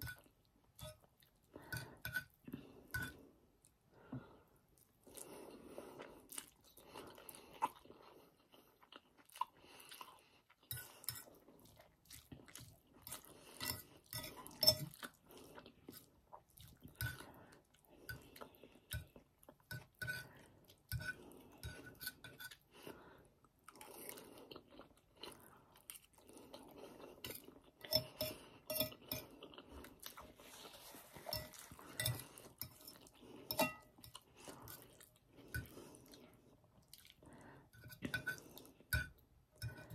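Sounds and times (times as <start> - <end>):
close-up chewing: 4.7 - 21.9, 22.5 - 39.9
fork clinking on plate: 33.5 - 33.9.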